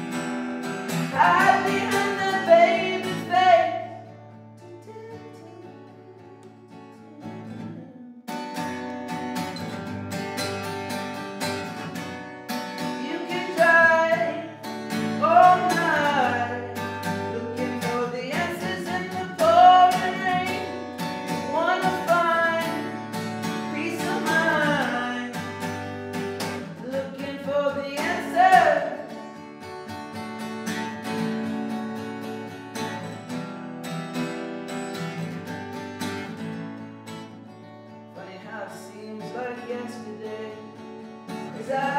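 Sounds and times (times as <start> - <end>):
acoustic guitar strummed: 0.0 - 41.9
man singing: 1.1 - 4.1, 4.7 - 6.3, 13.0 - 25.6, 26.6 - 29.1, 38.2 - 40.8, 41.4 - 41.9.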